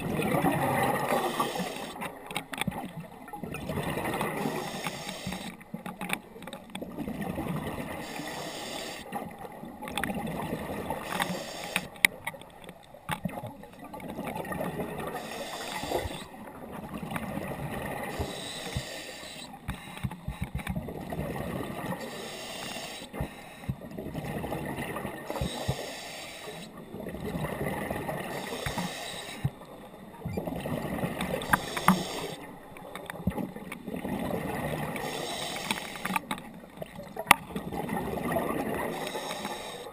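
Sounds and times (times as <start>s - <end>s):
diver breathing through regulator: 1.0s - 2.0s, 4.3s - 5.6s, 7.9s - 9.2s, 10.9s - 12.0s, 15.1s - 16.4s, 18.0s - 20.6s, 21.9s - 23.8s, 25.2s - 26.8s, 28.2s - 29.6s, 31.3s - 32.6s, 34.9s - 36.3s, 38.8s - 39.9s
small clicks: 1.3s - 3.1s, 4.4s - 6.9s, 11.0s - 14.4s, 18.1s - 20.8s, 28.4s - 30.4s, 31.2s - 33.9s, 35.0s - 37.6s, 38.9s - 39.9s.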